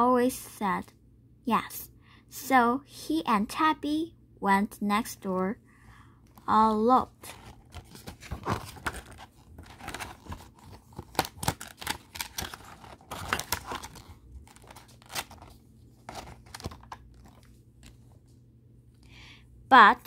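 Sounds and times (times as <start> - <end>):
paper pages rustling and crackling: 7.2 - 18.2.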